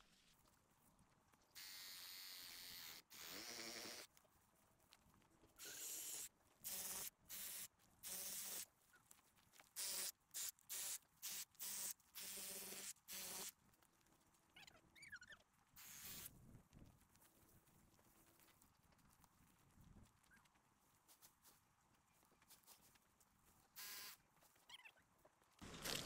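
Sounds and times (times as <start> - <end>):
dry grass rustling: 4.1 - 5.6, 13.5 - 26.0.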